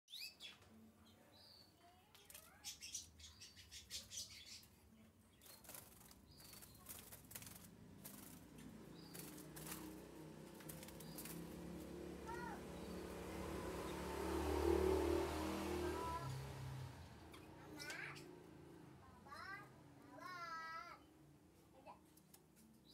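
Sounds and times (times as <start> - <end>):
bird wings fluttering: 5.4 - 12.0
bird chirps: 8.5 - 9.9.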